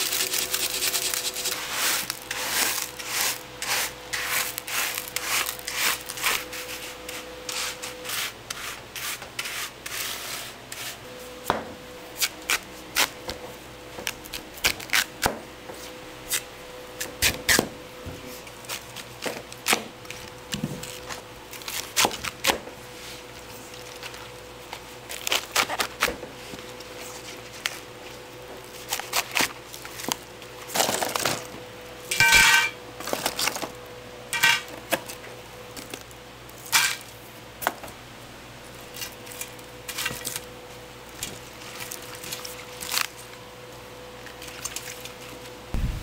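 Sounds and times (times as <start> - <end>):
dishes and utensils clinking: 32.1 - 32.8.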